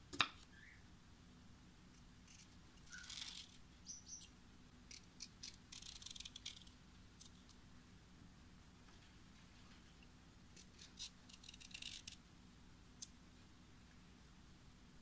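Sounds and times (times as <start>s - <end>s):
peeler scraping cucumber skin: 2.3s - 3.6s, 4.9s - 7.4s, 10.6s - 12.2s.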